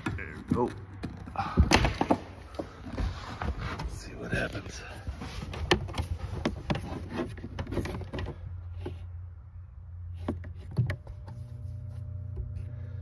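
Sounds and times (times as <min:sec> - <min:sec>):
handling clicks and knocks: 0:00.0 - 0:03.0, 0:05.3 - 0:09.1
low steady hum: 0:00.0 - 0:13.0.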